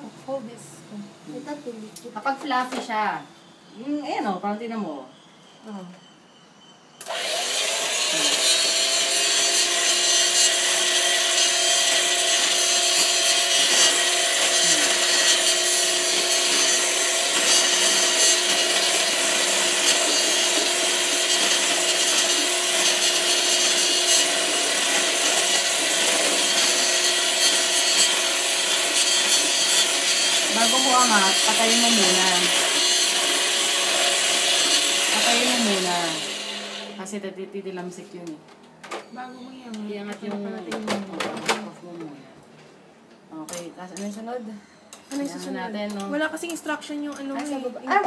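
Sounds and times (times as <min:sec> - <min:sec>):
electric mixer motor whining: 0:07.0 - 0:37.0
beaters churning butter in bowl: 0:07.2 - 0:36.9.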